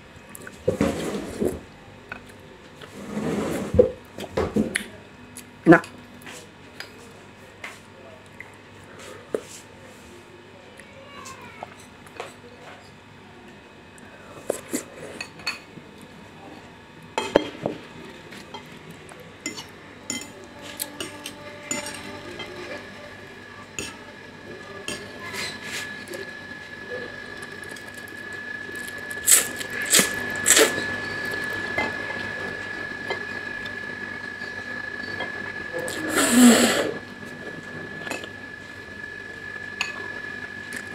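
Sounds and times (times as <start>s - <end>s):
noodle slurping: 35.9s - 37.0s.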